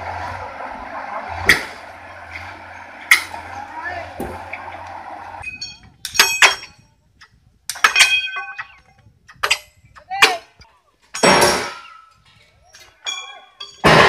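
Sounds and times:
rail grating scrape: 0.0 - 5.8
crowbars clanking on steel rail: 5.4 - 10.5, 11.1 - 14.0.

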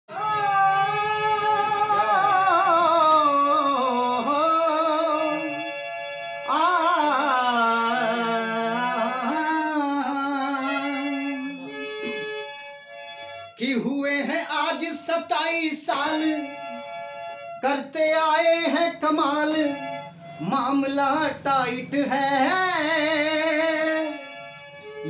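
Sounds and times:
harmonium chords: 0.1 - 25.0.

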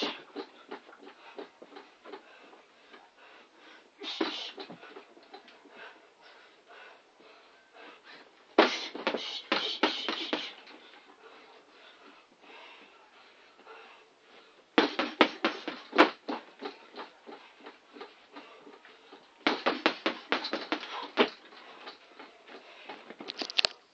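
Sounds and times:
boxing gloves hitting punch bag: 8.6 - 10.6, 14.8 - 16.7, 19.4 - 21.4.

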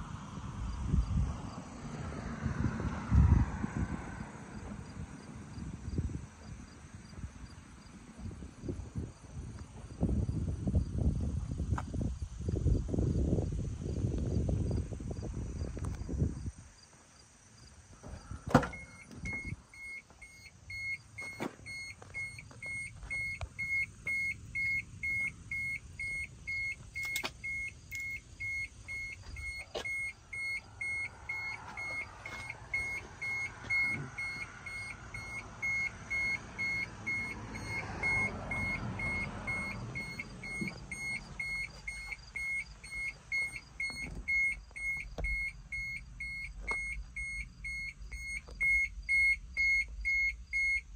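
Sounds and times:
high warning beeps: 18.6 - 50.9.

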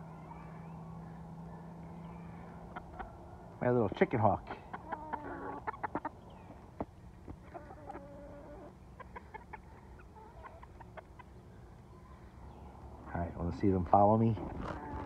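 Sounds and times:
hens clucking: 2.3 - 12.7, 14.5 - 15.0.

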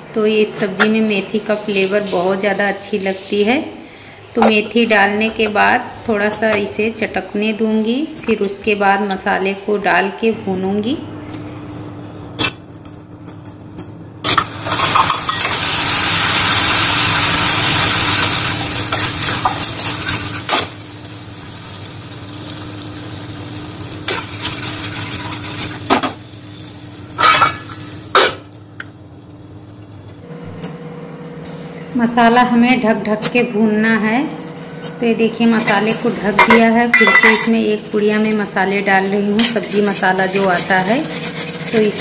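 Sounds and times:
paste sizzling in hot oil: 1.2 - 3.6, 14.7 - 28.1
metal spatula clinking and scraping: 35.6 - 38.5, 39.2 - 42.0
glass lid clinking: 36.4 - 37.5.

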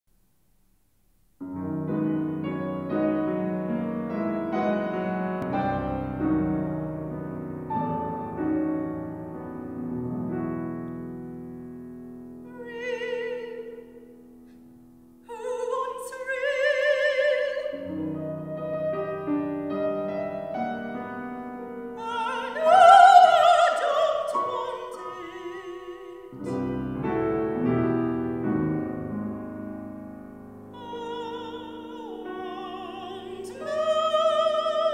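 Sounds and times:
solo piano: 1.4 - 15.3, 16.4 - 34.9
soprano singing opera aria: 12.4 - 14.2, 15.2 - 18.9, 21.8 - 26.9, 30.7 - 34.9.

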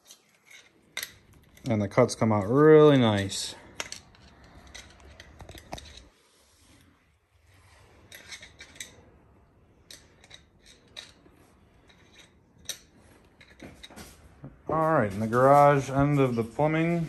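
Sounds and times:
metal pipe clicking: 9.8 - 14.1.

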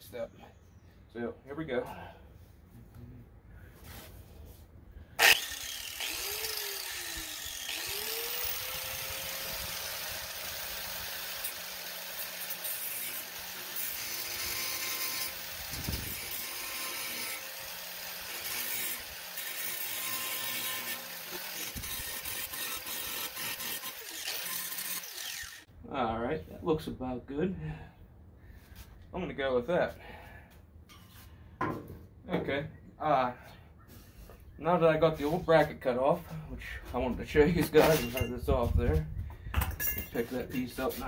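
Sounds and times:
angle grinder grinding metal: 5.2 - 25.7.

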